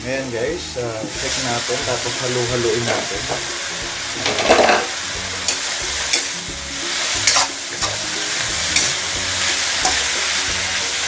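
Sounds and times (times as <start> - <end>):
vegetables sizzling in a wok: 0.0 - 11.0
utensil scraping a pan: 2.6 - 6.4, 7.1 - 10.8.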